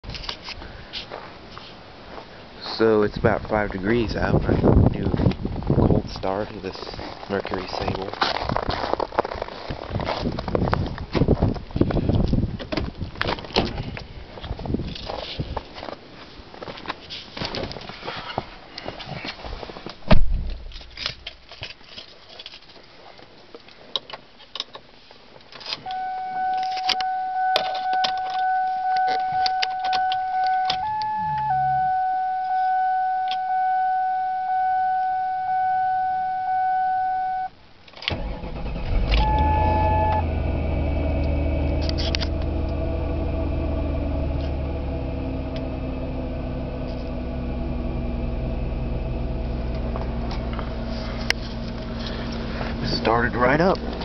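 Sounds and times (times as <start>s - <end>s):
car engine cranking and starting: 20.1s - 21.8s, 25.6s - 33.9s, 38.0s - 54.0s
dashboard warning chime: 25.9s - 37.5s, 39.2s - 40.3s
car engine idling: 26.8s - 34.0s, 38.1s - 54.0s.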